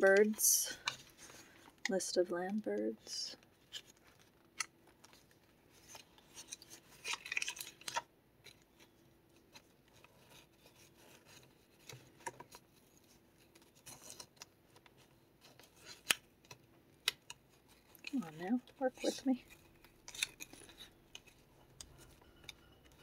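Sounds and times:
paper rustling: 3.4 - 23.0.

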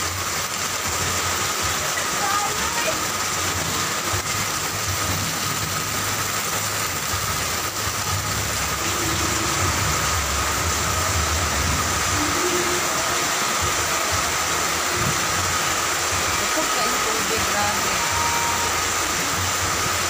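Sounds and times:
floodwater rushing: 0.0 - 20.0
heavy rain: 0.0 - 20.0
low rumble: 4.2 - 16.5.

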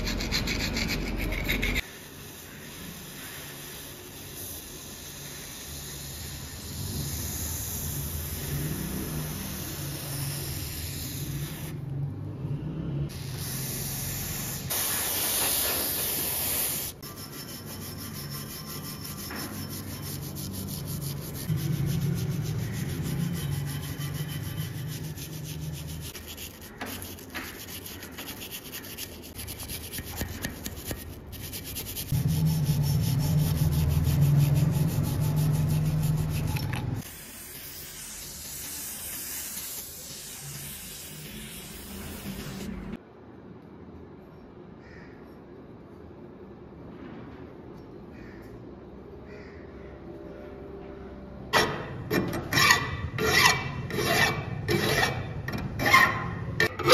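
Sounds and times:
sanding strokes on metal: 0.0 - 11.7, 13.7 - 43.0, 52.1 - 56.9.

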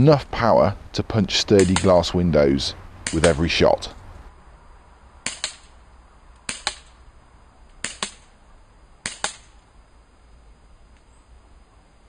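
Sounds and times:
bb pistol shots: 1.6 - 2.0, 3.0 - 3.5, 5.2 - 5.8, 6.4 - 7.0, 7.8 - 8.3, 9.0 - 9.5.

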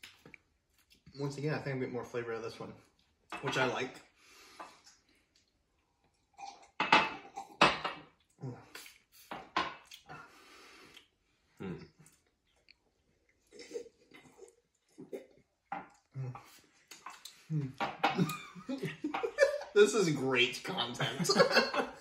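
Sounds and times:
glasses knocking on countertop: 6.8 - 8.0.

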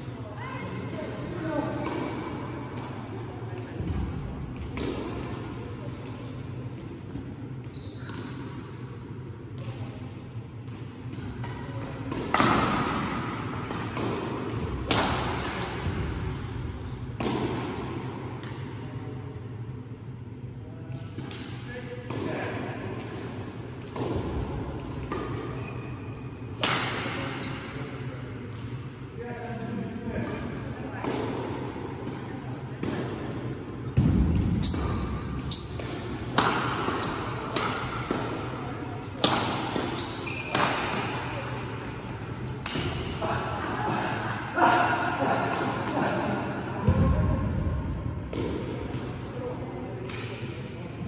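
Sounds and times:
rackets hitting shuttlecock: 1.8 - 2.3, 3.8 - 5.4, 10.7 - 18.8, 23.0 - 25.4, 30.2 - 44.1, 48.2 - 49.2
shoes squeaking on court floor: 6.0 - 8.4, 13.5 - 14.0, 15.4 - 16.3, 23.8 - 24.4, 27.2 - 28.2, 34.6 - 38.9, 39.7 - 43.2
badminton rackets hitting shuttlecock: 11.2 - 15.6, 35.6 - 38.4, 39.2 - 41.9.

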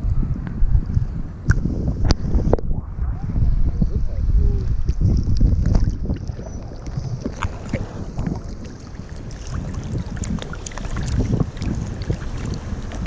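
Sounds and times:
wind buffeting microphone: 0.0 - 13.0
water lapping and splashing: 0.9 - 13.0
water drips: 4.9 - 13.0.

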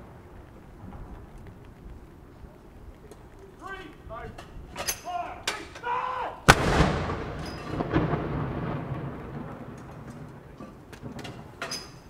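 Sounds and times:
field gun boom: 6.5 - 10.2
rumbling echo: 6.5 - 11.6.

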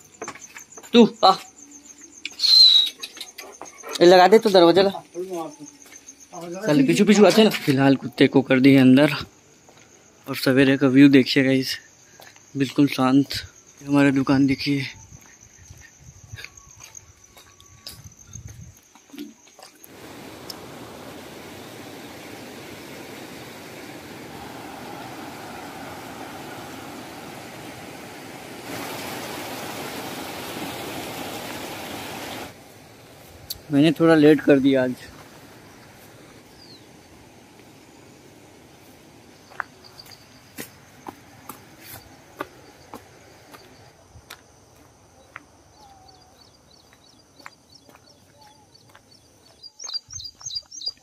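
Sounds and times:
bird chirps: 0.0 - 4.0, 36.5 - 37.0, 45.2 - 51.0
high insect drone: 0.0 - 48.0
river water flowing over rocks: 19.9 - 33.1.

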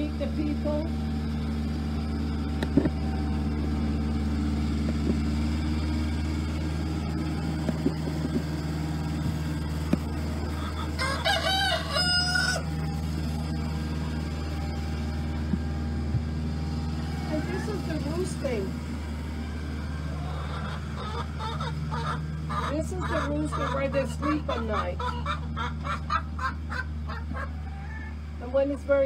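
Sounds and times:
steady low hum: 0.0 - 29.0
rooster crowing: 10.6 - 12.9, 26.4 - 28.4.

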